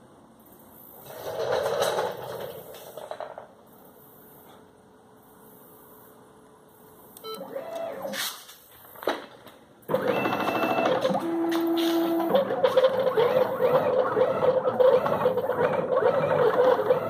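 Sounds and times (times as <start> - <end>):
stepper motors whirring: 9.9 - 17.0.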